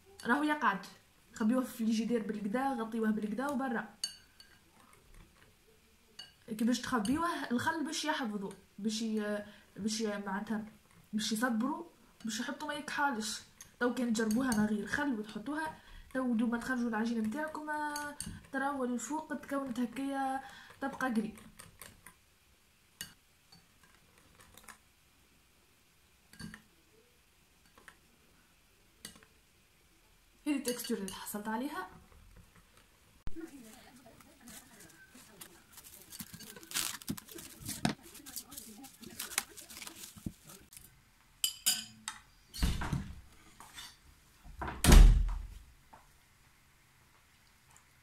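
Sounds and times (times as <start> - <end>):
kitchenware clink: 41.4 - 42.2.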